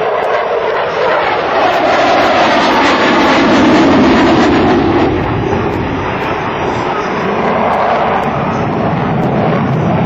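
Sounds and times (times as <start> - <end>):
jet fighter passing in afterburner: 0.0 - 10.0.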